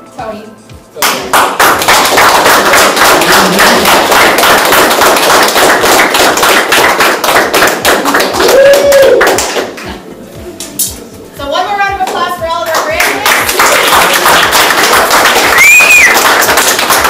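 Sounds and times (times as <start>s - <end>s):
audience applauding: 1.0s - 9.9s, 12.8s - 17.0s
person shouting a cheer: 8.4s - 9.3s.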